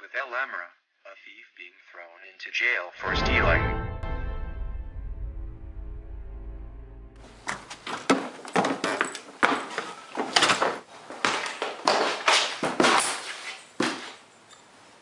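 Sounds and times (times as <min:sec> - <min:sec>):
scuffle knocks and thumps: 0:07.5 - 0:14.2.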